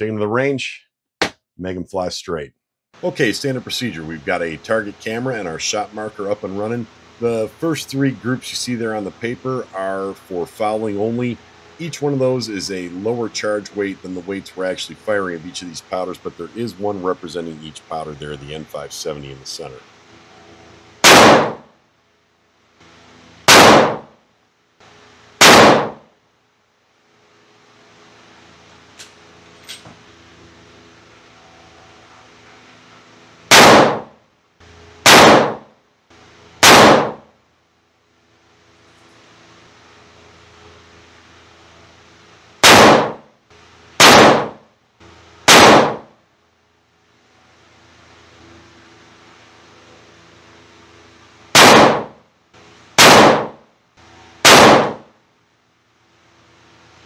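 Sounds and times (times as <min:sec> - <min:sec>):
rifle shots: 0:21.0 - 0:21.7, 0:23.5 - 0:24.2, 0:25.4 - 0:26.0, 0:33.5 - 0:34.2, 0:35.0 - 0:35.7, 0:36.6 - 0:37.3, 0:42.6 - 0:43.3, 0:44.0 - 0:44.6, 0:45.5 - 0:46.1, 0:51.5 - 0:52.2, 0:53.0 - 0:53.6, 0:54.4 - 0:55.1.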